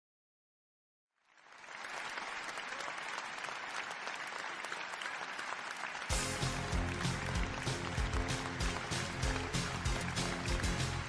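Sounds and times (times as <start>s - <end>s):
audience applauding: 1.2s - 11.0s.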